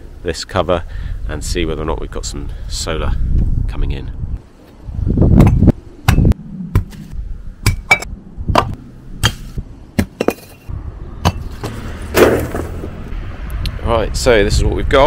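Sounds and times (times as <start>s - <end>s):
bricks thrown to the ground: 10.0s - 13.0s.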